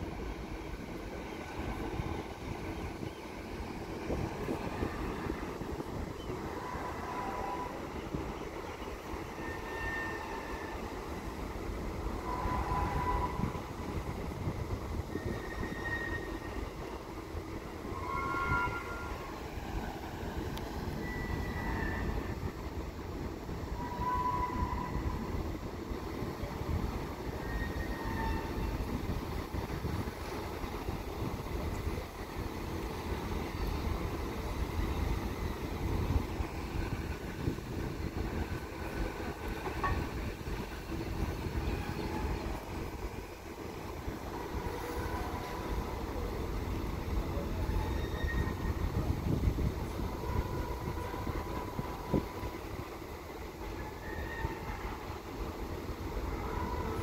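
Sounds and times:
wind buffeting microphone: 0:00.0 - 0:06.6, 0:28.4 - 0:44.8, 0:48.3 - 0:53.5
faint high whining tones: 0:00.0 - 0:57.0
low ferry rumble: 0:00.0 - 0:57.0.

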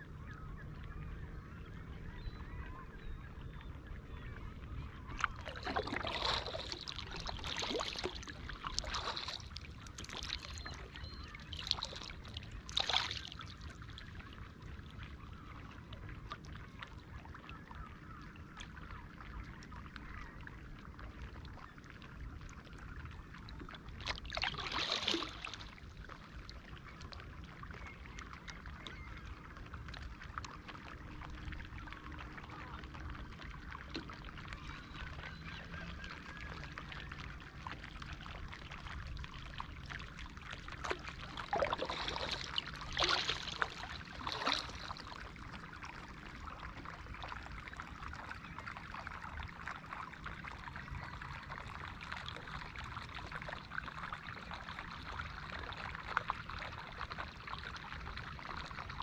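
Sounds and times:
paddle blades splashing: 0:04.4 - 0:15.8, 0:23.8 - 0:59.0
wind and water rushing: 0:05.4 - 0:10.7, 0:40.8 - 0:46.2.

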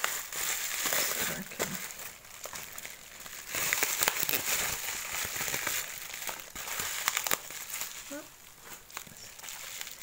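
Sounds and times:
bubble wrap crinkling: 0:00.0 - 0:10.0.

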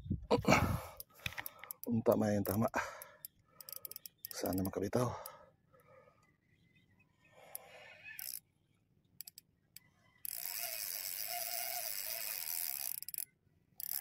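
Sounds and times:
fishing reel gears whirring: 0:01.0 - 0:05.3, 0:07.3 - 0:08.5, 0:09.2 - 0:14.0
light reel clicks: 0:01.0 - 0:05.4, 0:07.4 - 0:08.4, 0:09.2 - 0:09.5, 0:10.2 - 0:14.0.

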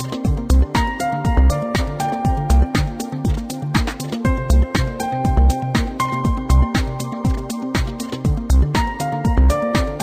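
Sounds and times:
kick drum beat: 0:00.2 - 0:10.0.

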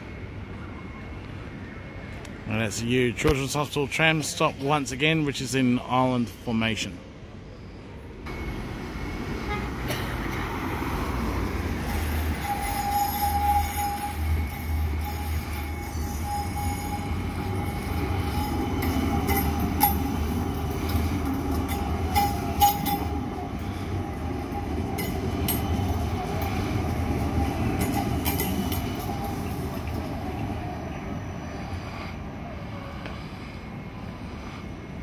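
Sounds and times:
tram passing: 0:00.0 - 0:35.0.

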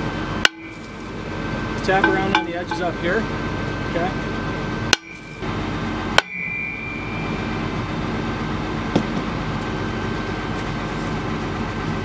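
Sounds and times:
steady hum: 0:00.0 - 0:12.0
brake drum ringing: 0:00.4 - 0:01.0, 0:01.8 - 0:03.3, 0:04.9 - 0:09.4.

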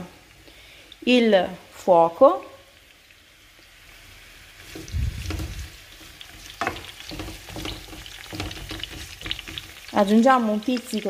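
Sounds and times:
peppers sizzling in oil: 0:00.0 - 0:11.0
wooden spoon scraping pan: 0:04.6 - 0:09.9.

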